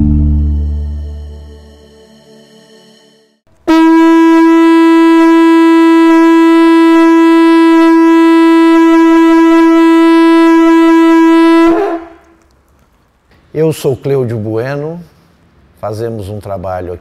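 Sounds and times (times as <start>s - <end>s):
conch shell trumpet note: 3.6s - 12.2s.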